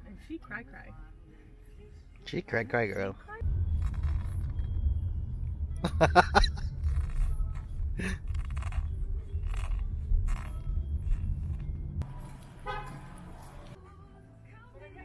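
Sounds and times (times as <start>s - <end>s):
road rumble inside car: 3.4s - 13.8s
short horn toot: 12.6s - 13.3s.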